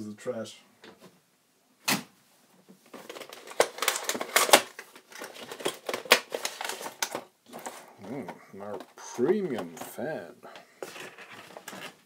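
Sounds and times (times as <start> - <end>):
plastic and cardboard crackling: 2.7 - 12.0.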